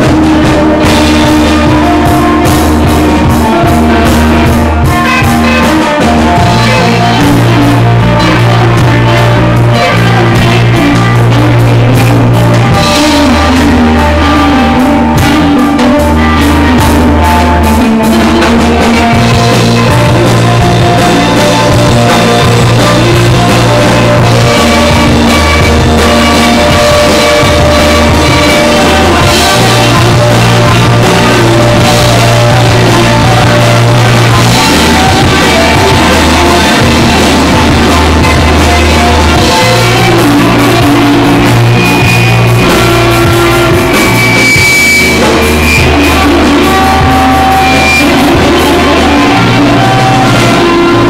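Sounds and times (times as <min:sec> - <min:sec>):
drum kit: 0:00.0 - 0:51.0
electric guitars: 0:00.0 - 0:51.0
low bass line: 0:00.0 - 0:51.0.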